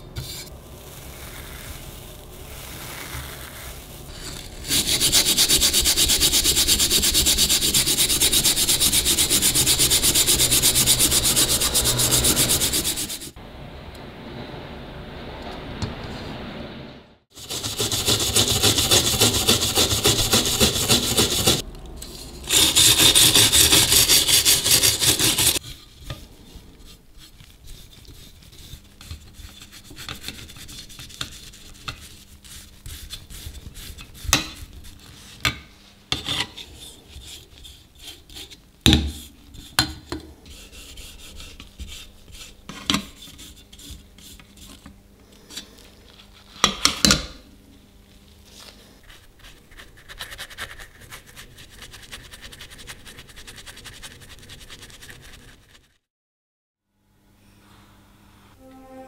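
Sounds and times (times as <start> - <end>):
hand brushing on metal: 1.1 - 13.3, 17.5 - 21.6, 22.5 - 35.3
wire brush wheel grinding metal: 4.1 - 13.3, 17.4 - 21.6, 22.4 - 26.1.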